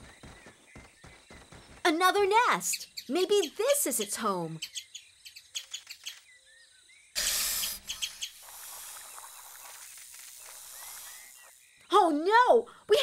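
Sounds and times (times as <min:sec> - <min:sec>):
soft bird-like chirps: 0:02.6 - 0:12.2
soft snake hiss: 0:07.2 - 0:11.7.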